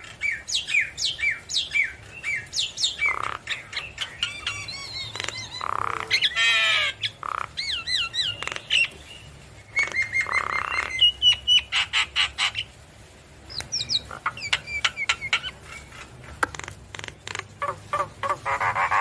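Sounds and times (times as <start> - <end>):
bird singing whistles and rasps: 0.2 - 11.7, 13.5 - 15.6.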